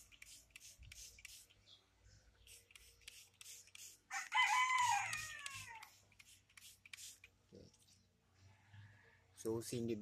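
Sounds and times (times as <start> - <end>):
rooster crowing: 4.1 - 6.0.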